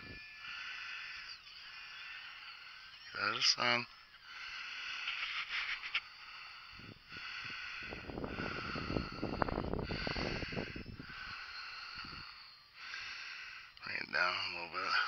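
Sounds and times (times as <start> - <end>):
person breathing: 0.0 - 3.3, 4.0 - 13.8
wind buffeting microphone: 6.7 - 12.3.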